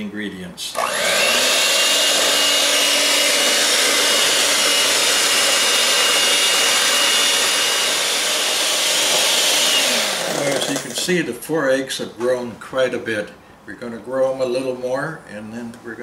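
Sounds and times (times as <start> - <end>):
electric mixer whipping eggs: 0.7 - 11.0.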